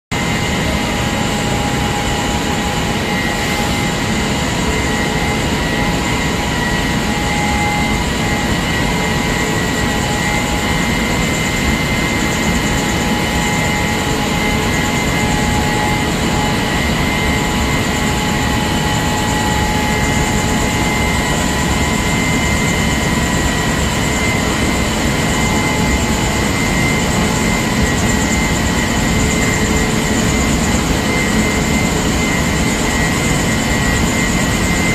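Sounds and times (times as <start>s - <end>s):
high machine whines: 0.1s - 34.9s.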